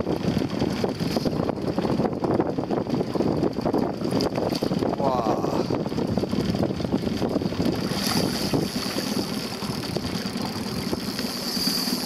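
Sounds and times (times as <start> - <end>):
choppy water: 0.0 - 12.0
wind buffeting microphone: 0.0 - 12.0
fish splashing: 7.5 - 12.0.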